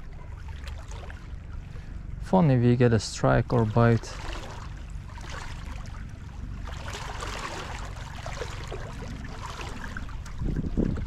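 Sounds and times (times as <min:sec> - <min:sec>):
wind rumble on microphone: 0:00.0 - 0:11.0
small waves lapping on rocks: 0:02.6 - 0:06.0, 0:06.6 - 0:11.0.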